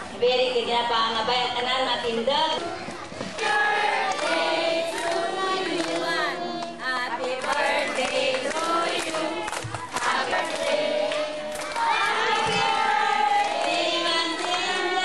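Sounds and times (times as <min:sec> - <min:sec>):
group of people singing: 0:03.3 - 0:15.0.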